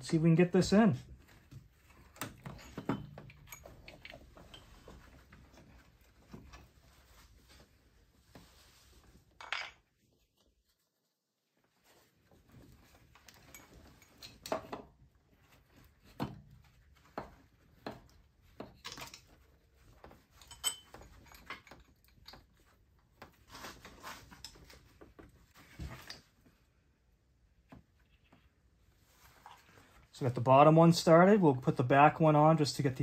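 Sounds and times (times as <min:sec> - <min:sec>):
rubbing and handling noises: 0:01.0 - 0:09.4, 0:10.2 - 0:26.8, 0:27.5 - 0:30.2
metallic clinks and knocks: 0:01.6 - 0:06.7, 0:13.1 - 0:15.0, 0:16.6 - 0:22.8.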